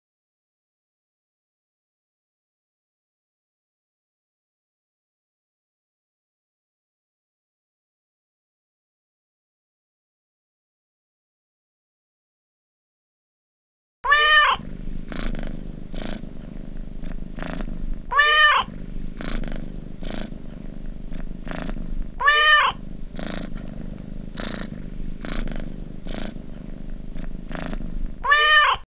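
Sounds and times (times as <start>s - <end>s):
cat meowing: 14.0s - 14.6s, 18.1s - 18.7s, 22.2s - 22.8s, 28.2s - 28.9s
cat purring: 14.1s - 28.9s.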